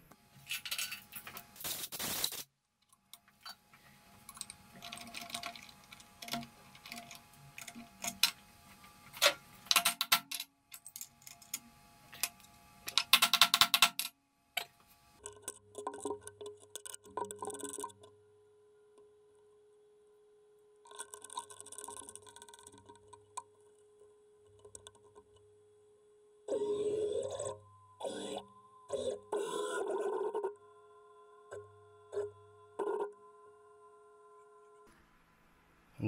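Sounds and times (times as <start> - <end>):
faint steady hum: 14.1 - 36.0.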